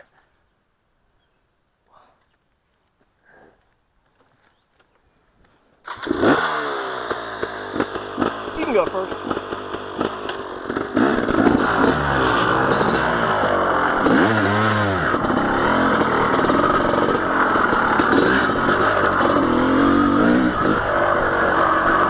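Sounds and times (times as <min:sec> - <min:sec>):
dirt bike engine revving: 0:05.8 - 0:22.0.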